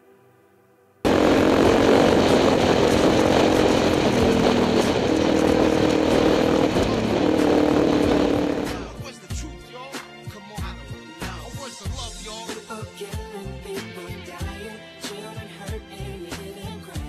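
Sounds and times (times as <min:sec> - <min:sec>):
motorcycle engine running: 0:01.1 - 0:09.0
road noise: 0:01.1 - 0:09.0
wind rushing: 0:01.1 - 0:09.0.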